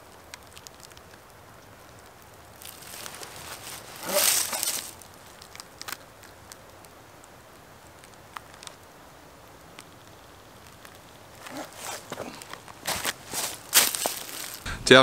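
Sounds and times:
boot crunching leaves and bark: 2.6s - 5.0s, 11.4s - 14.7s
soft rustling: 2.6s - 5.7s, 11.4s - 15.0s.

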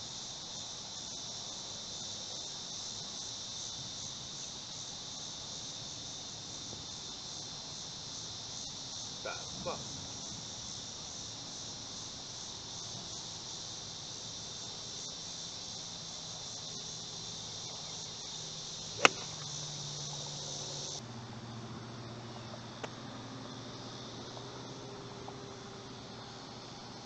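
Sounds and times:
insects chirring: 0.0s - 27.0s
golf club hitting ball click: 19.0s - 19.5s.

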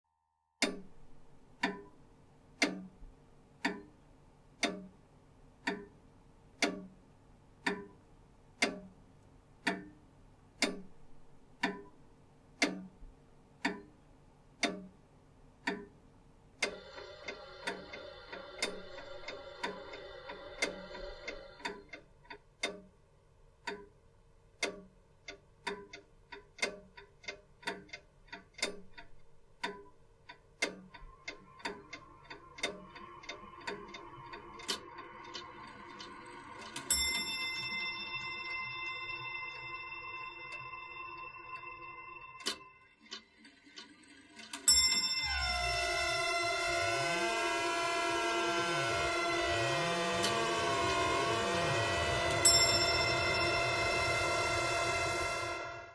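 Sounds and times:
regular ticking: 0.6s - 41.8s, 42.4s - 55.9s
held chord of steady tones: 30.9s - 43.0s, 44.7s - 55.9s.

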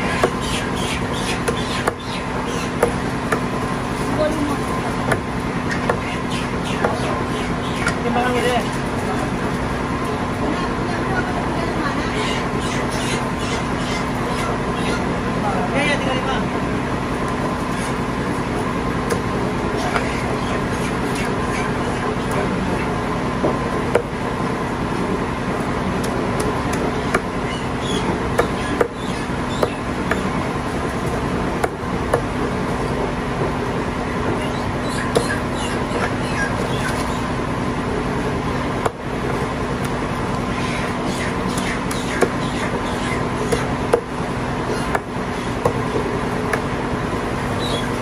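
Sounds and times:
meat cleaver chopping on wood: 0.0s - 3.5s, 5.1s - 7.1s, 26.0s - 30.3s, 31.6s - 32.3s, 34.9s - 36.0s, 41.5s - 44.1s, 44.8s - 45.8s
loud background hum: 0.0s - 48.0s.

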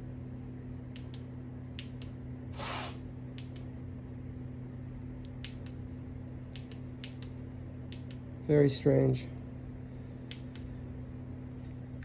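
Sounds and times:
low electrical hum: 0.0s - 12.0s
short hiss: 2.6s - 3.0s
flasher relay clicks: 6.5s - 8.2s.

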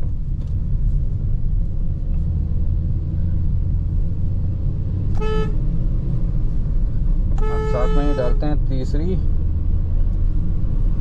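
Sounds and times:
car horn beep: 5.1s - 5.6s, 7.4s - 8.5s.

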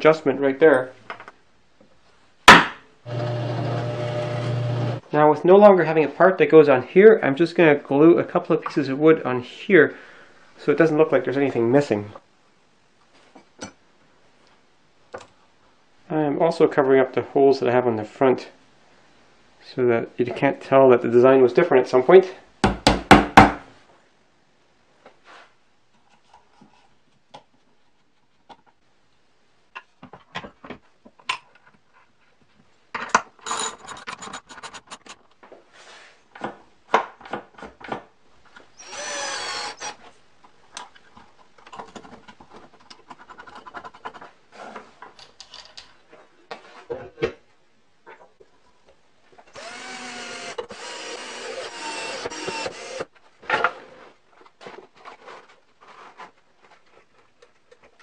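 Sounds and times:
cordless drill running: 3.1s - 5.0s, 38.8s - 40.0s, 49.6s - 53.1s.

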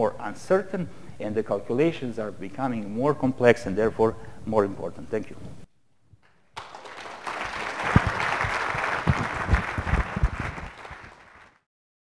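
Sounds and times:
audience applauding: 6.6s - 11.6s
dull low thumps: 9.0s - 10.7s.

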